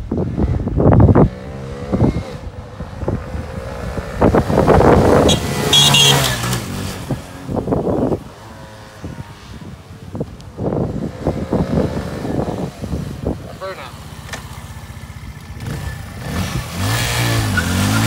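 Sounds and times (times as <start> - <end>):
motorcycle engine passing by: 1.1 - 7.5, 14.4 - 18.0.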